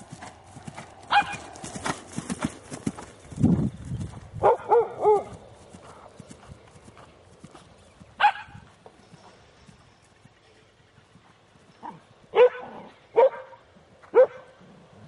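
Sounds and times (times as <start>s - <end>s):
horse hooves thudding on grass: 0.0s - 12.8s
dog barking: 1.1s - 1.4s, 4.4s - 5.3s, 8.2s - 8.6s, 11.8s - 14.6s.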